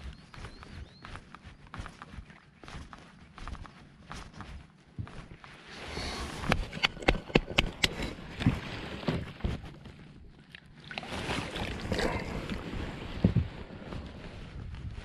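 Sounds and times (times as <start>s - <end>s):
sharp knocks and clicks: 6.5s - 8.2s
water sloshing: 6.5s - 14.3s.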